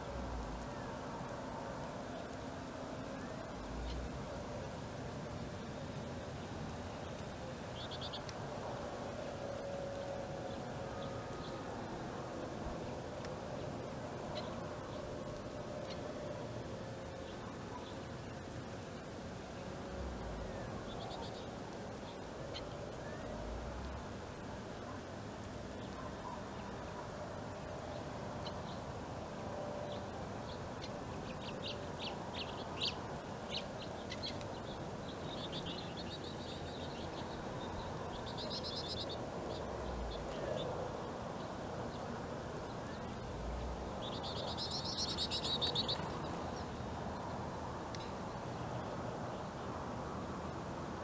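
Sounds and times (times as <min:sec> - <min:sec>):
low background noise: 0:00.0 - 0:51.0
finches chirping: 0:29.8 - 0:48.2
buzzy bird trills: 0:30.5 - 0:40.7, 0:44.0 - 0:46.6.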